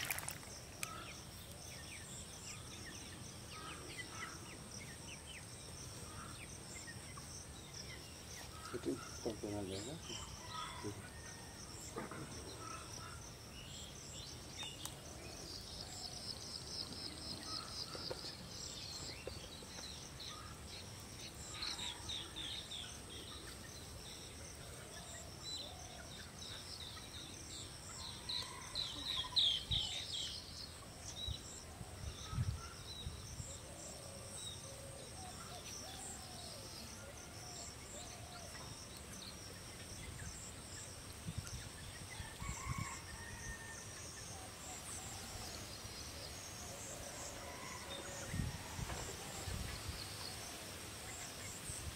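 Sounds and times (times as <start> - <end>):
high hum of insects: 0.0 - 51.9
small birds chirping and trilling: 0.0 - 51.9.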